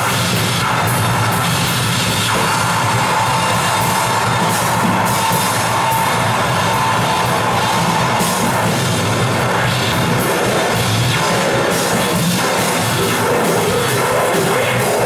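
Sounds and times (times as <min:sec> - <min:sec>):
drum kit: 0:00.0 - 0:15.0.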